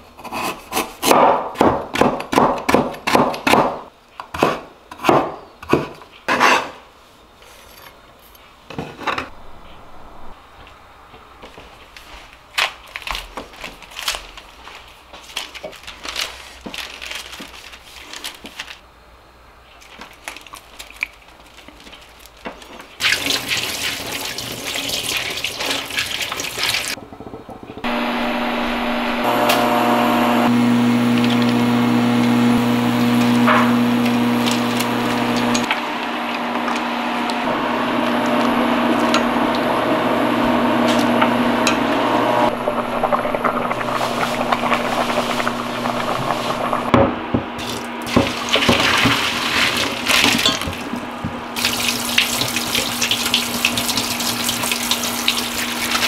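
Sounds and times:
rushing water: 51.6 - 56.0.

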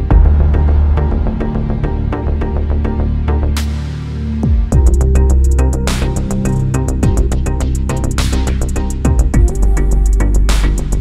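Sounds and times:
heavy bass hit: 0.0 - 5.2
electronic beat with deep bass: 0.0 - 11.0.

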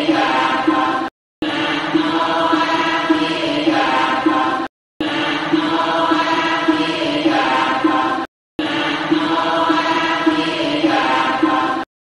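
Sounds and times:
devotional chanting: 0.0 - 11.9.

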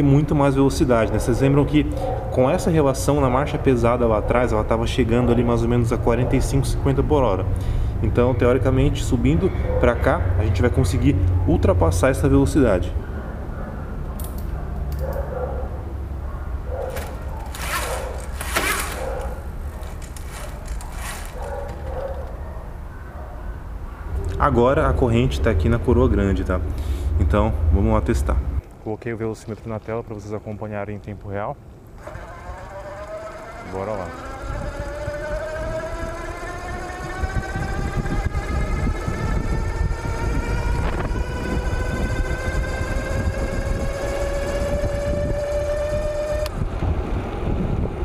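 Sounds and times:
electric bike motor whining: 16.6 - 23.0, 31.8 - 48.0
bicycle chain running: 16.7 - 22.5, 32.0 - 46.6
chain clicks and rattles: 16.7 - 22.6
wind buffeting microphone: 32.1 - 48.0.

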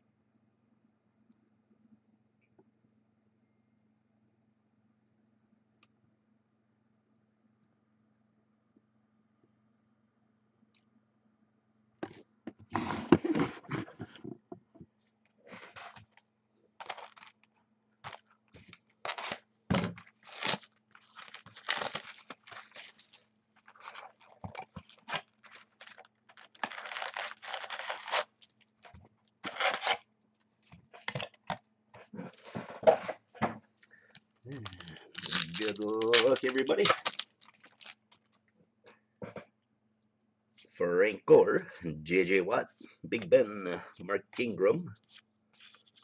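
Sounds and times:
cards rustling: 16.8 - 19.4, 20.0 - 30.0, 34.6 - 38.4
foil wrappers tearing and crinkling: 16.8 - 19.4, 20.0 - 30.0, 34.6 - 38.4, 45.0 - 46.0.

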